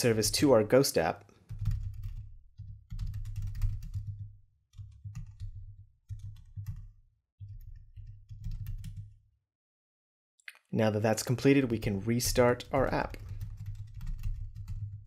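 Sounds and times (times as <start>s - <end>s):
typing on computer keyboard: 1.5s - 9.2s, 12.4s - 15.0s.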